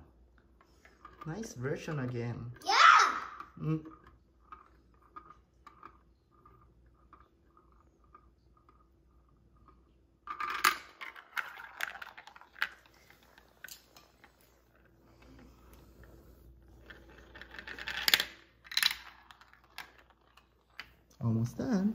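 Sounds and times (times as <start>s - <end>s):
marble rolling in plastic bowl: 0.0s - 2.6s, 3.2s - 21.9s
marble clattering down plastic track: 3.2s - 15.3s, 16.7s - 21.0s.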